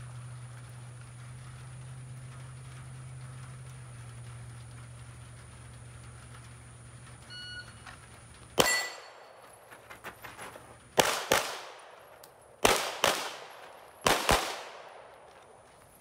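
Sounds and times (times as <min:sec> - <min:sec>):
handgun shots echoing: 0:08.6 - 0:09.3, 0:11.0 - 0:15.4
shot timer beep: 0:08.6 - 0:09.3.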